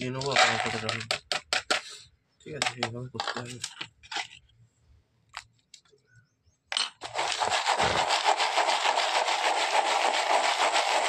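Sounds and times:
pellets rattling in steel cup: 0.0s - 1.1s, 7.0s - 11.0s.

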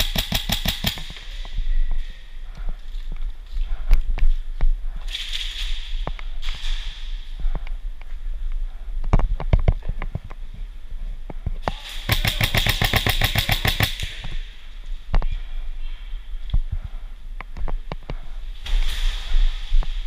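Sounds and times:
airsoft rifle full-auto burst: 0.0s - 1.1s, 12.0s - 14.0s
sharp pops and clicks: 0.0s - 1.2s.

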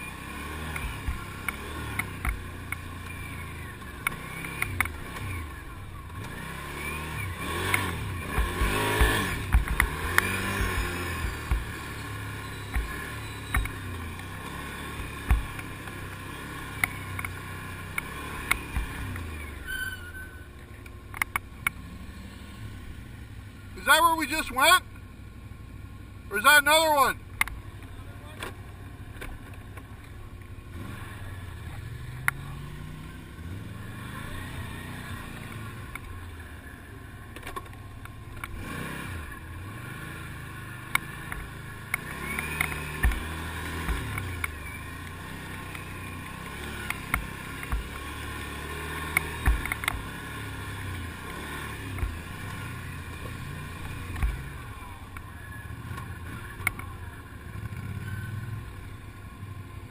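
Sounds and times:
atv engine revving: 0.0s - 59.9s
sharp knocks and clicks: 7.7s - 11.7s, 15.2s - 16.0s, 40.9s - 44.6s, 49.1s - 50.1s.

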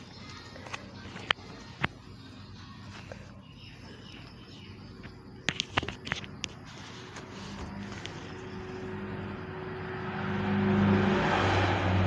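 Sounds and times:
vehicle approaching: 6.8s - 12.0s.

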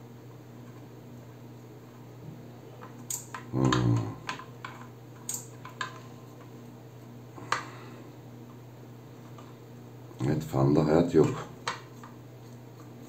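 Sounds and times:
low electrical hum: 0.0s - 13.0s
wire connectors clicking: 2.8s - 6.0s.

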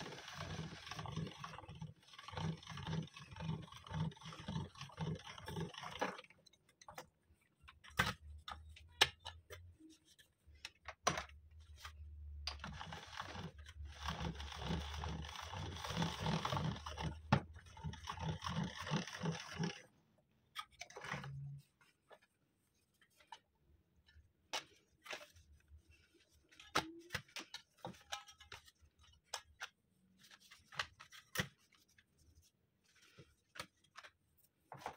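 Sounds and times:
pasta machine cranking: 0.0s - 6.3s, 12.6s - 19.9s.

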